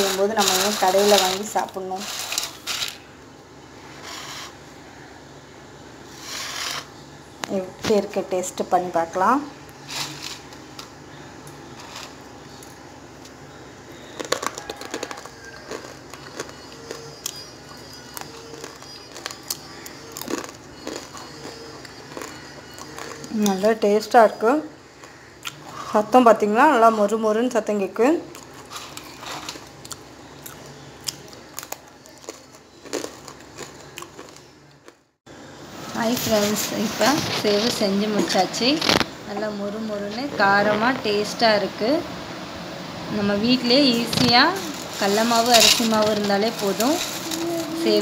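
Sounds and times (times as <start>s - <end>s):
crisp fried snack crunching: 0.0s - 3.0s, 14.1s - 23.3s, 28.3s - 35.0s.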